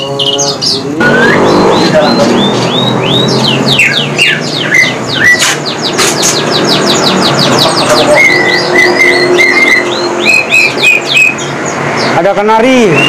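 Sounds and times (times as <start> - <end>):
songbird singing: 0.0 - 13.0.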